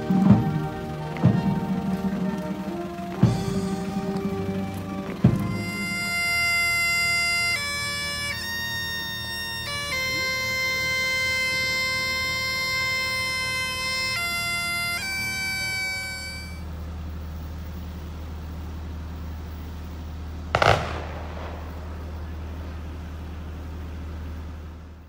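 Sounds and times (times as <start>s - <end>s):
bagpipes playing: 0.0s - 16.8s
steady low rumble: 16.6s - 25.0s.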